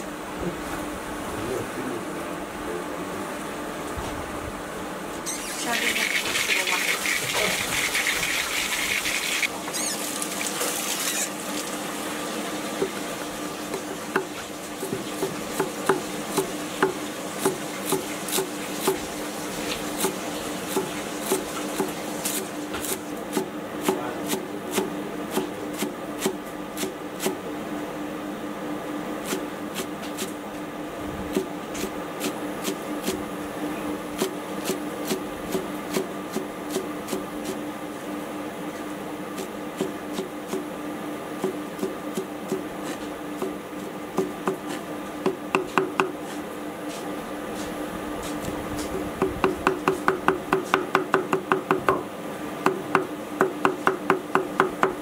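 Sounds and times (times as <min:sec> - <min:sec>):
cleaver chopping on wooden block: 0:44.2 - 0:46.2, 0:49.2 - 0:52.0, 0:52.6 - 0:55.0.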